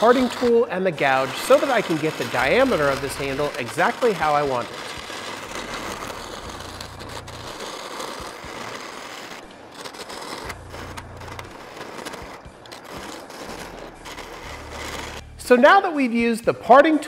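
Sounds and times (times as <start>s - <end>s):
lathe motor hum: 0.0s - 0.6s, 1.2s - 15.4s
turning tool scraping wood: 0.0s - 15.6s.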